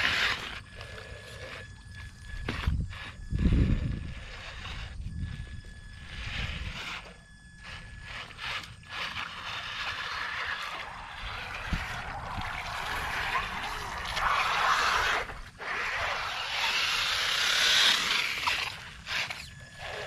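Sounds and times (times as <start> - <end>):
toy car driving on concrete: 0.0 - 20.0
toy car splashing through water: 9.2 - 20.0.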